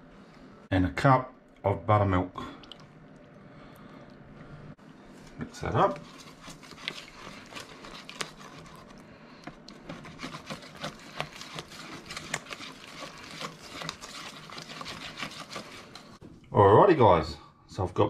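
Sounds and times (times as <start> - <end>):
whisk beating batter in metal bowl: 5.5 - 16.2.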